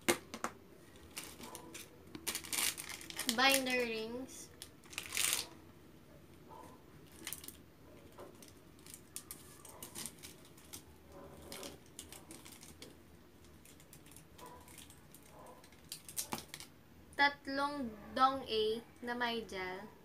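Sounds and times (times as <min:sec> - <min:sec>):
packaged items clicking and rustling: 0:00.0 - 0:05.6, 0:07.0 - 0:16.7.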